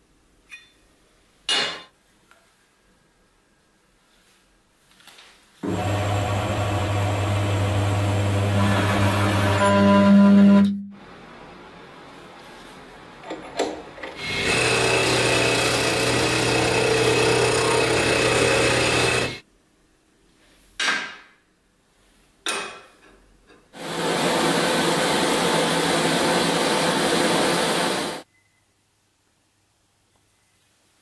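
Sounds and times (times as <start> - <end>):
metal lathe running: 5.6 - 9.9, 14.2 - 19.4.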